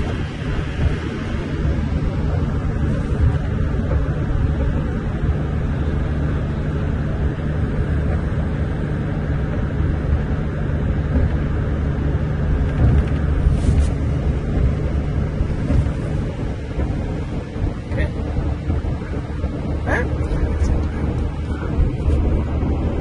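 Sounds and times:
bus engine hum: 0:00.0 - 0:23.0
road noise: 0:00.0 - 0:23.0.

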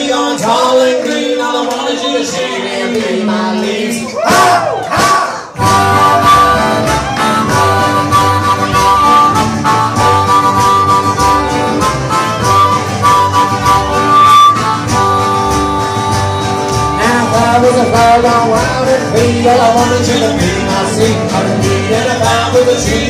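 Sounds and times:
strummed guitar: 0:05.0 - 0:23.0
harmonica long notes: 0:05.6 - 0:21.8.

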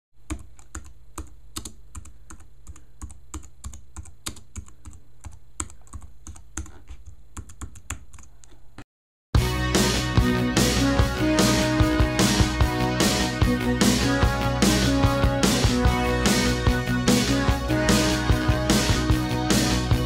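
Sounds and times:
keyboard typing clicks: 0:00.2 - 0:08.6.

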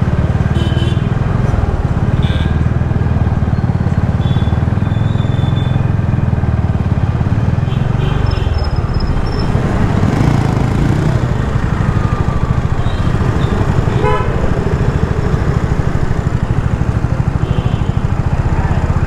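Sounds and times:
vehicle rumble in traffic: 0:00.0 - 0:19.0
car horn toot: 0:00.5 - 0:01.1, 0:02.2 - 0:02.7, 0:04.2 - 0:05.8, 0:12.8 - 0:14.6.

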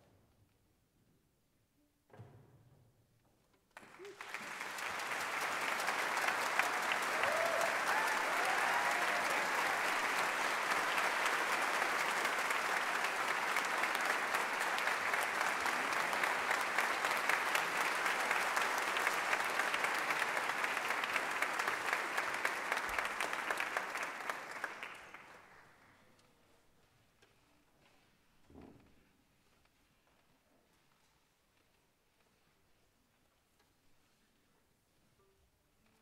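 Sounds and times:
audience applauding: 0:03.8 - 0:25.7.

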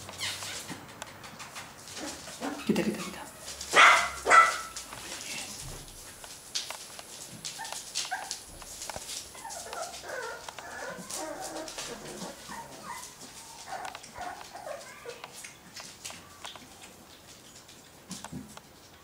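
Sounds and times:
paws scratching on newspaper: 0:00.1 - 0:17.8
puppies yipping and whining: 0:07.5 - 0:08.5, 0:09.1 - 0:15.2.

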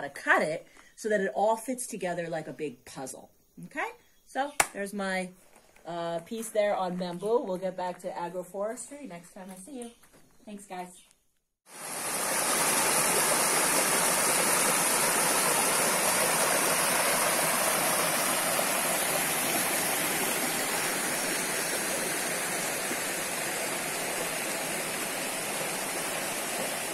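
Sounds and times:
stream splashing over rocks: 0:11.7 - 0:26.9.

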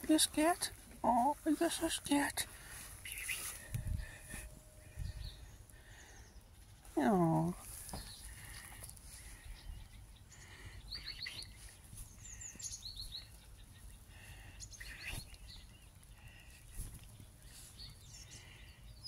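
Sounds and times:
faint outdoor background noise: 0:00.0 - 0:19.0
small birds chirping: 0:00.0 - 0:19.0.

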